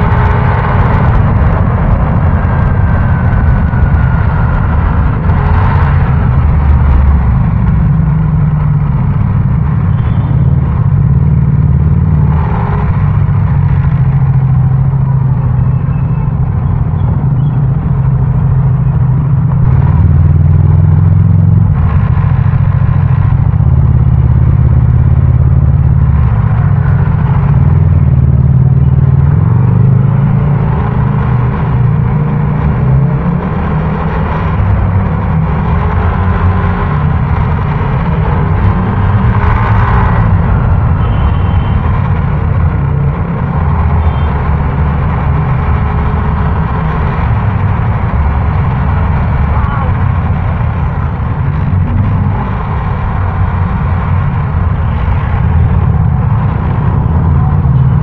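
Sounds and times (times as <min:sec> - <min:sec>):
motorcycle engine running: 0:00.0 - 0:30.6
traffic noise: 0:00.0 - 0:58.0.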